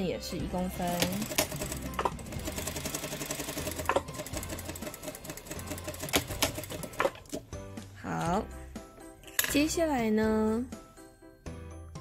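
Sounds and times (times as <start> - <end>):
sewing machine stitching: 0.6 - 7.4.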